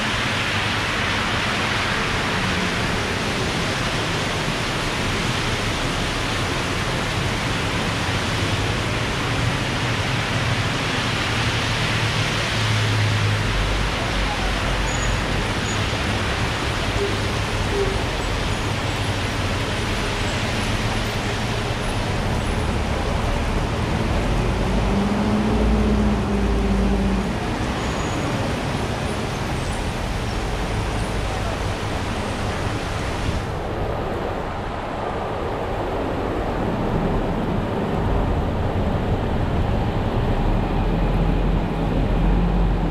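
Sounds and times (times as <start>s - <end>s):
heavy rain falling: 0.0s - 42.9s
road traffic passing: 0.0s - 42.9s.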